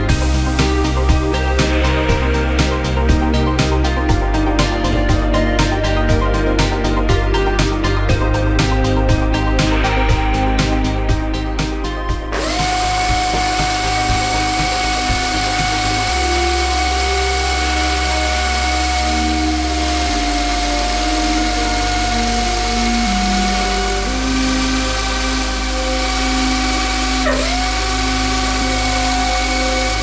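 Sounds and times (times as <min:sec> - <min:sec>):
background music: 0:00.0 - 0:30.0
air hissing: 0:09.6 - 0:30.0
pneumatic drill whine: 0:12.3 - 0:30.0.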